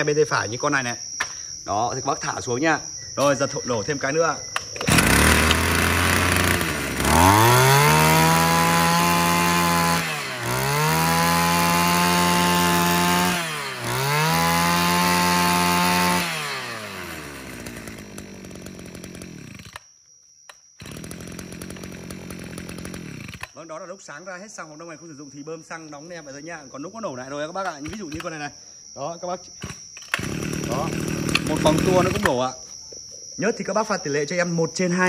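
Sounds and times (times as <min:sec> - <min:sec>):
brush cutter engine revving: 0:04.6 - 0:19.9, 0:20.8 - 0:23.6, 0:27.7 - 0:28.4, 0:29.6 - 0:32.5.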